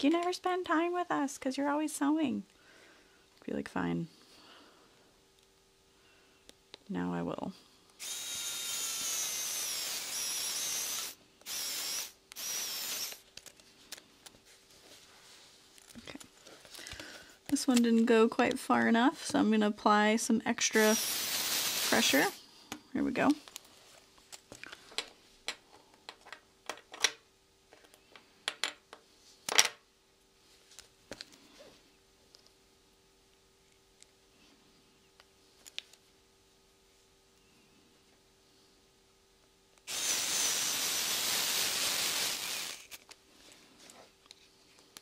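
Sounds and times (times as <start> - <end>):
electric screwdriver whining: 8.0 - 13.2, 20.8 - 22.4, 39.9 - 43.0.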